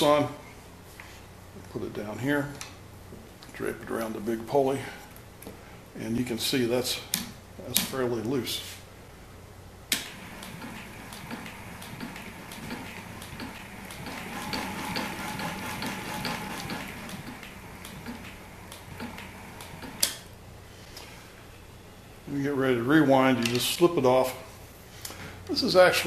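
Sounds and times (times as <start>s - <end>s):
mechanical whirr with ticking: 9.9s - 20.2s.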